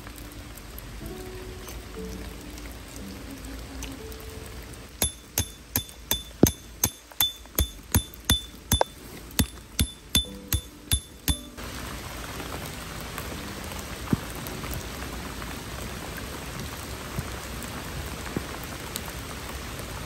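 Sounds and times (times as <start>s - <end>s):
heavy rain on wood and trees: 0.0s - 6.1s, 6.7s - 9.8s, 10.7s - 20.0s
hammer striking metal stake: 5.0s - 11.6s.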